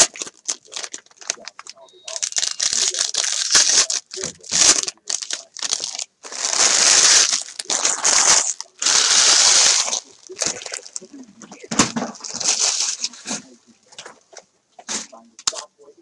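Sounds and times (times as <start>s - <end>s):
packaging torn and crinkled: 0.0s - 11.1s, 12.1s - 13.2s.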